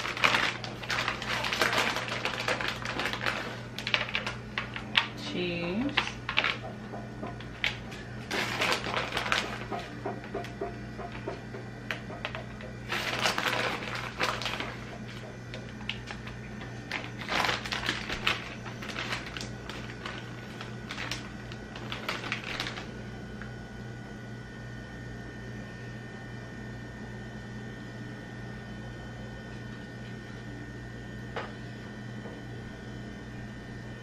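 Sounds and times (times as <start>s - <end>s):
crinkling and light clicks: 0.0s - 5.2s, 5.9s - 23.5s.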